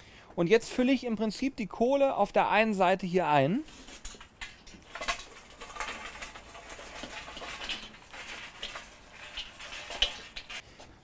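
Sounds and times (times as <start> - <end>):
hot coals crackling and clinking: 3.6 - 10.6.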